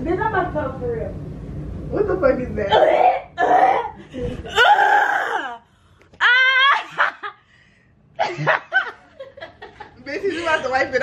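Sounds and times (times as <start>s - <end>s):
woman shrieking: 2.7s - 5.6s, 6.2s - 7.2s
woman laughing: 6.6s - 7.4s, 8.2s - 10.9s.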